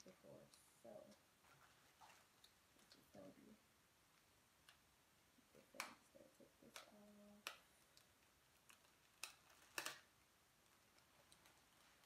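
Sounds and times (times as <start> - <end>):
plastic bag crinkling: 8.0 - 10.1.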